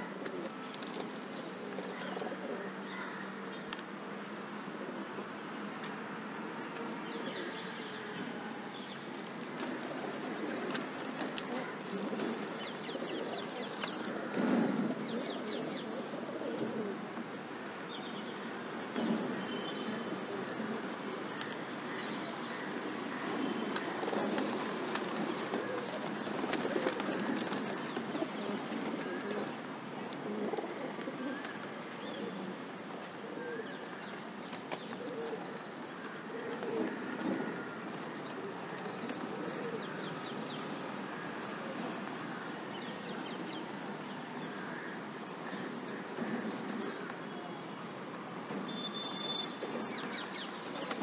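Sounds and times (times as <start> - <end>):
pigeons cooing: 9.5 - 17.3, 19.1 - 41.9.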